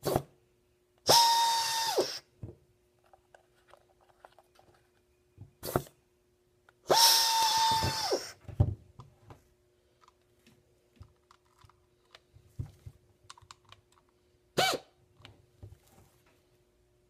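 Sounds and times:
pneumatic tool motor whining: 0:01.1 - 0:02.2, 0:06.9 - 0:08.4.

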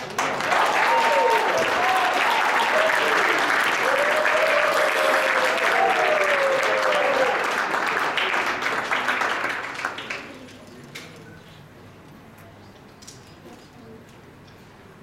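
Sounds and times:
audience applauding: 0:00.0 - 0:10.6
person cheering: 0:00.5 - 0:07.4.

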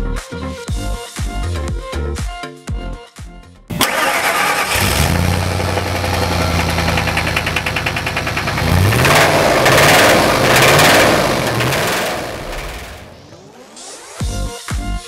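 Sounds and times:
car engine starting: 0:03.7 - 0:13.4
engine revving: 0:03.7 - 0:13.4
engine idling with metallic knock: 0:05.4 - 0:13.2.

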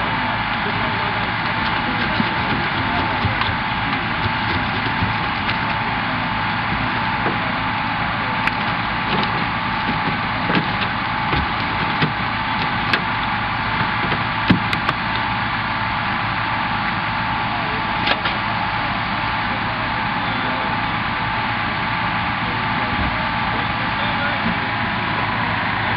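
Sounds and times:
hydraulic tool motor running: 0:00.1 - 0:15.4.

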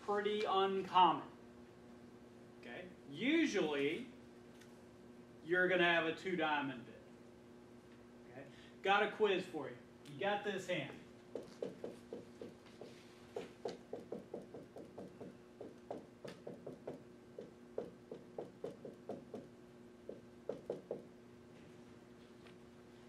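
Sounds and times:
marker tapping and scraping on whiteboard: 0:11.3 - 0:19.5, 0:20.1 - 0:21.1.

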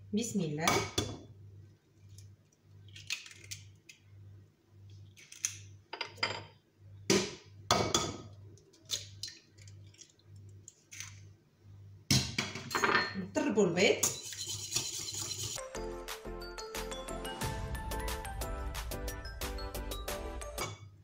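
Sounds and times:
eggs cracked on ceramic bowl: 0:02.9 - 0:04.0.

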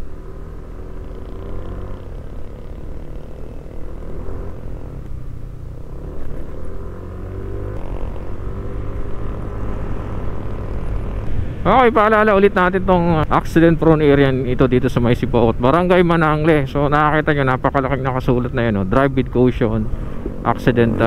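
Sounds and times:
scooter engine running: 0:00.0 - 0:11.4
wind and road noise: 0:00.0 - 0:21.0.

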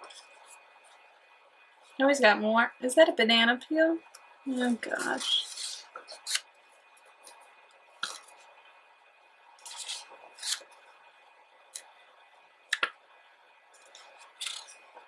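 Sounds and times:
book pages turning: 0:04.6 - 0:07.4, 0:09.6 - 0:10.8, 0:13.8 - 0:15.0.

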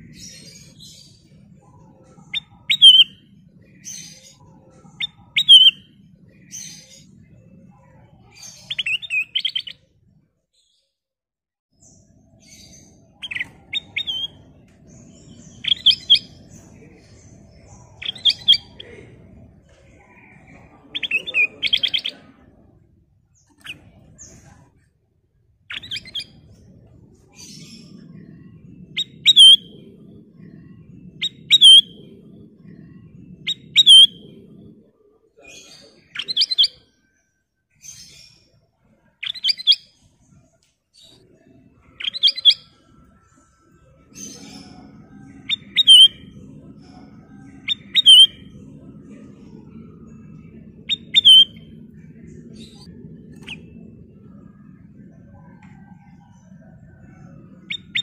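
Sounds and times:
bird calling: 0:02.2 - 0:03.2, 0:05.0 - 0:05.9, 0:17.6 - 0:19.3, 0:28.9 - 0:34.5, 0:44.2 - 0:48.9, 0:49.5 - 0:54.6.

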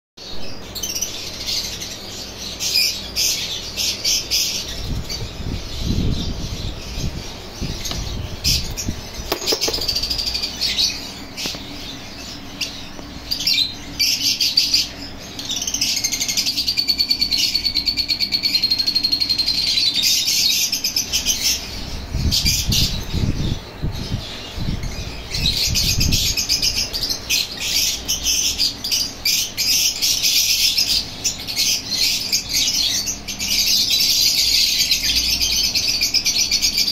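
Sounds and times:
parrot chicks calling: 0:00.5 - 0:36.9
rumbling handling noise: 0:04.9 - 0:13.4.

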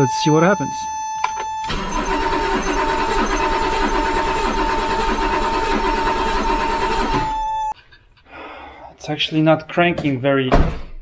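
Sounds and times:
high warning tone: 0:00.0 - 0:07.8
car engine cranking: 0:01.2 - 0:07.7.

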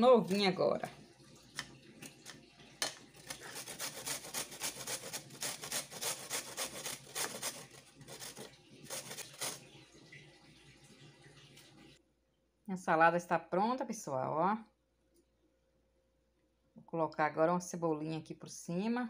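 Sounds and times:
grating on metal grater: 0:03.2 - 0:09.6.

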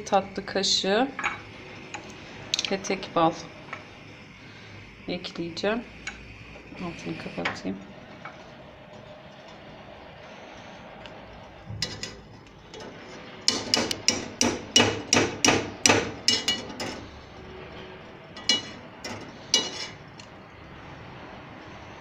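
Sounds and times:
metal spoon tapping on pot: 0:13.5 - 0:16.7.

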